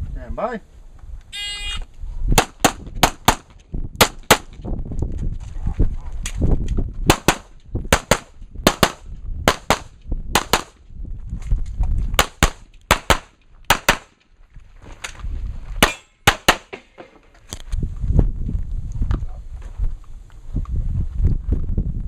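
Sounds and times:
handgun shots in quick pairs: 0:02.4 - 0:04.6, 0:07.1 - 0:10.8, 0:12.2 - 0:14.2, 0:15.8 - 0:17.0.

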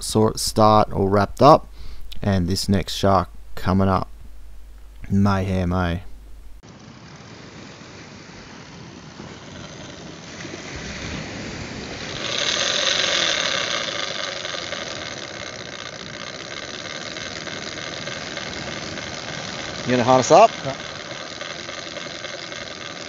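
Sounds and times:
fishing reel ratchet clicker buzzing: 0:12.1 - 0:23.0.

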